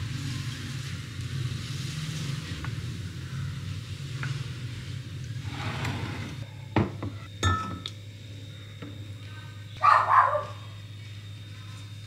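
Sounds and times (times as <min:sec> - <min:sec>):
steady low hum: 0:00.0 - 0:12.0
glass clinks: 0:07.4 - 0:07.9.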